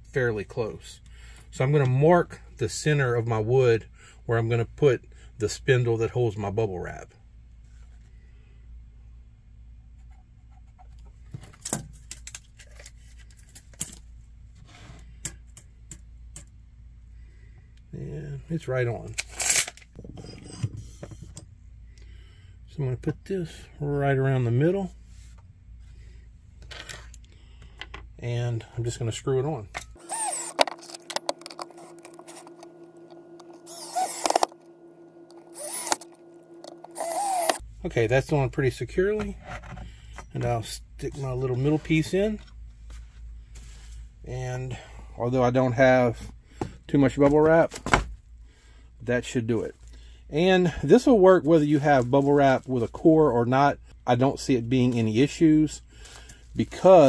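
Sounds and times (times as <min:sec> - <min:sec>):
faint low hum: 0:00.0 - 0:57.0
cordless drill driving screws: 0:30.0 - 0:37.6.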